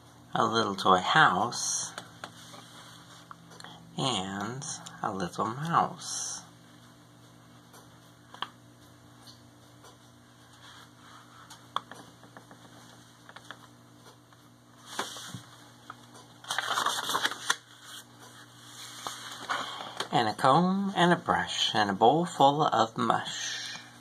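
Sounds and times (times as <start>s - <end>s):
book pages rustling: 14.8s - 19.5s.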